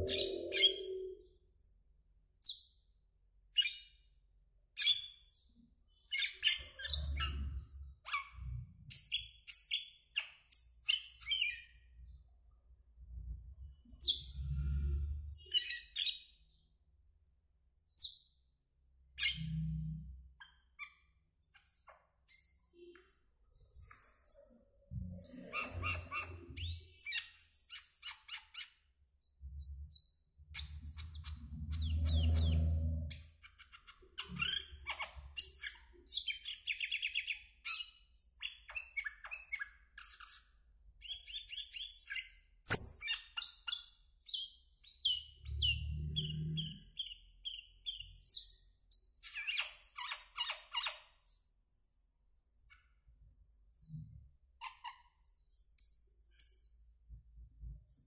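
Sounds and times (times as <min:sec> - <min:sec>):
bird singing chirps and whistles: 0:00.0 - 0:01.4.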